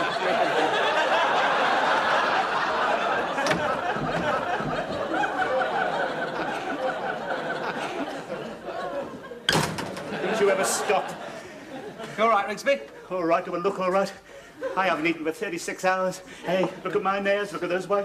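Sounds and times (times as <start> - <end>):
studio audience laughing: 0.0 - 12.5.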